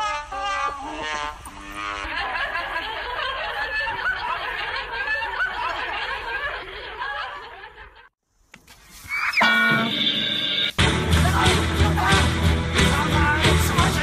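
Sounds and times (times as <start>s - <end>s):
people laughing: 2.0s - 8.1s
music: 9.7s - 14.0s.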